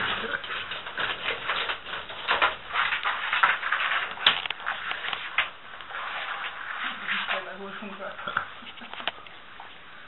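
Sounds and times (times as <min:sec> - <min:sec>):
iguanas crunching food: 0:00.0 - 0:07.5.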